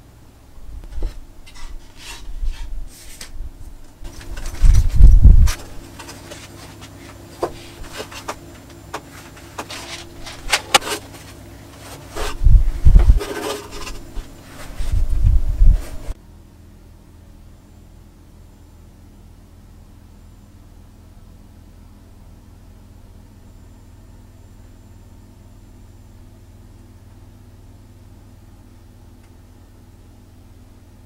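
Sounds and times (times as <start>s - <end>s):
wood rubbing on wood: 4.1s - 16.2s.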